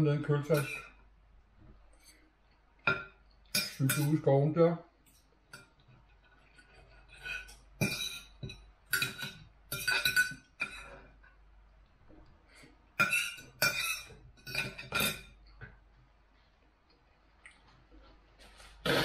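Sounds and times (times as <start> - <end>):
knife and fork scraping a plate: 0.5 - 0.9, 5.1 - 11.0, 13.0 - 15.4.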